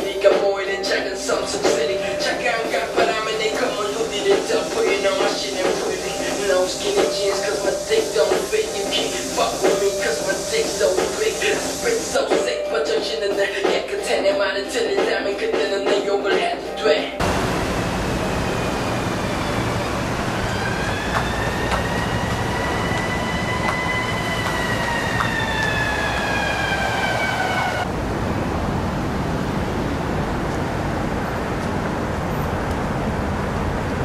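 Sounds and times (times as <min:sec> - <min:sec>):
street traffic noise: 0:00.0 - 0:12.6, 0:17.2 - 0:34.0
siren wailing: 0:17.2 - 0:27.9.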